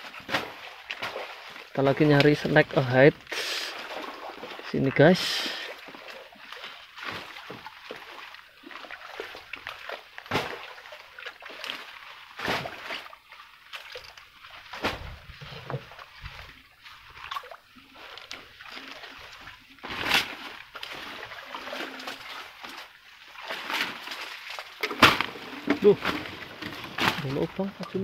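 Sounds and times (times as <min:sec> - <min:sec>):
paddle splashing in water: 0:00.0 - 0:28.0.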